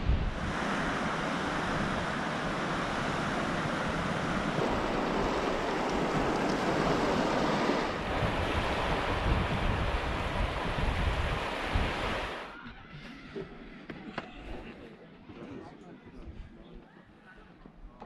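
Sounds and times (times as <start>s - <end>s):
wind buffeting microphone: 0.0s - 12.5s
waves washing onto pebbles: 0.3s - 12.5s.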